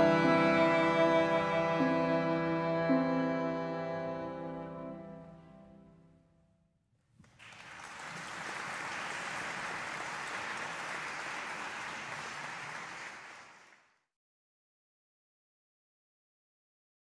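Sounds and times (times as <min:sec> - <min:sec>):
music: 0:00.0 - 0:06.8
audience applause: 0:07.2 - 0:14.0.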